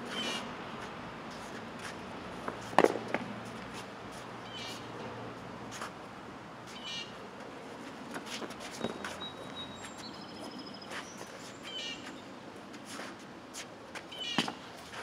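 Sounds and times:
footsteps on hard court: 0:07.4 - 0:15.0
birds chirping and whistling: 0:08.8 - 0:12.2.

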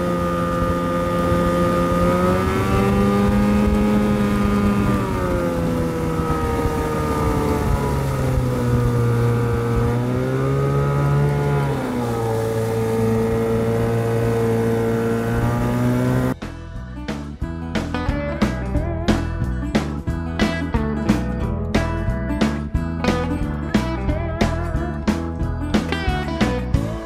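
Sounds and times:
rush of boat wake: 0:00.0 - 0:16.4
outboard motor running: 0:00.0 - 0:27.0.

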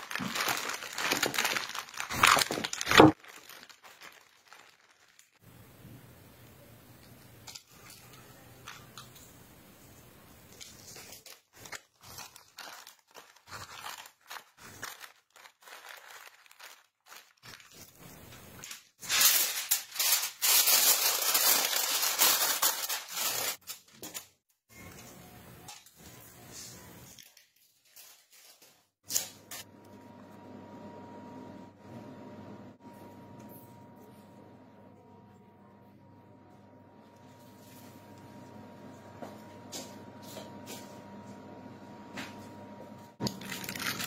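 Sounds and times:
aluminium foil crinkling: 0:00.0 - 0:05.4, 0:07.2 - 0:25.0, 0:25.7 - 0:29.7, 0:43.2 - 0:44.0
parchment paper rustling: 0:00.0 - 0:05.4, 0:07.4 - 0:25.1, 0:25.8 - 0:29.7, 0:43.2 - 0:44.0.

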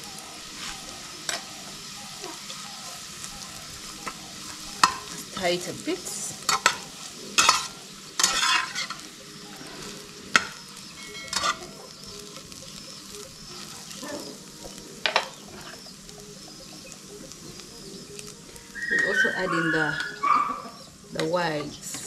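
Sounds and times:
food sizzling in frying pan: 0:00.0 - 0:22.0
fork scraping frying pan: 0:06.5 - 0:09.0, 0:11.1 - 0:11.7.

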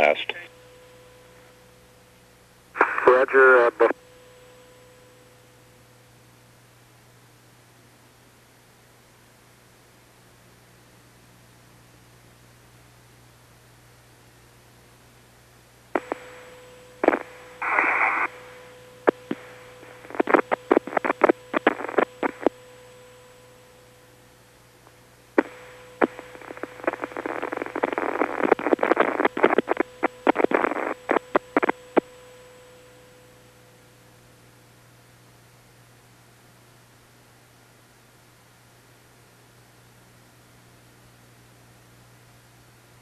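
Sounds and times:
radio static crackling and clicks: 0:00.0 - 0:00.5, 0:02.8 - 0:04.0, 0:16.0 - 0:23.2, 0:25.4 - 0:32.2
faint steady tone: 0:00.0 - 0:06.5, 0:15.9 - 0:41.6
low hum and hiss: 0:00.0 - 0:43.0.

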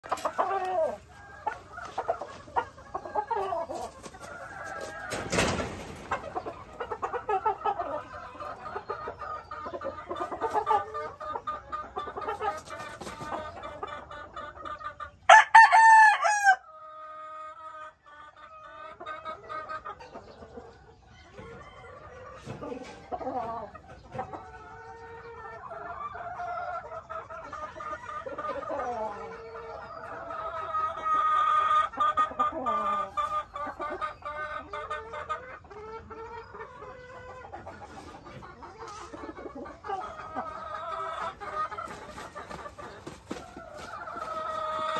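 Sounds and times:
chickens clucking: 0:00.0 - 0:44.9
rooster crowing: 0:15.3 - 0:16.6.

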